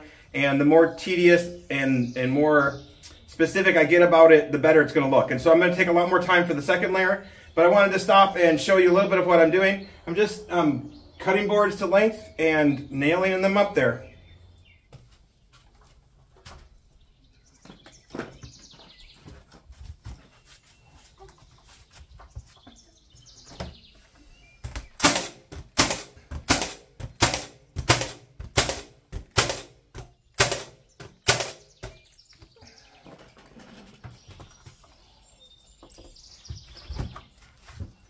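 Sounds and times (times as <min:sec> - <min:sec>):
nail gun firing into wood: 0:25.0 - 0:32.0.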